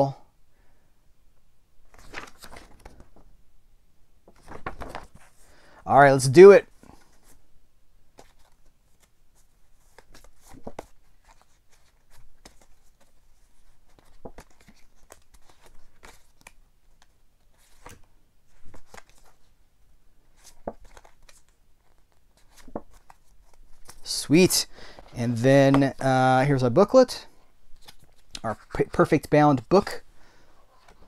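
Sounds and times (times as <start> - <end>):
cards rustling and slapping: 1.9 - 3.3, 4.3 - 5.4, 8.1 - 19.5, 20.3 - 24.2, 24.8 - 26.1, 27.7 - 30.0.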